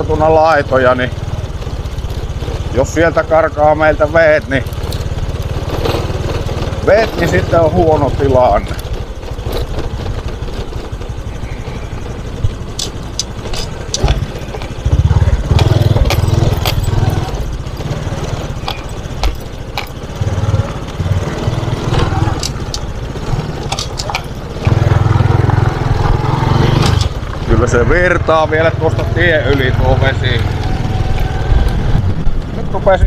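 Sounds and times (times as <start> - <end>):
moped engine running: 0.0 - 33.0
wind rumble on microphone: 30.2 - 33.0.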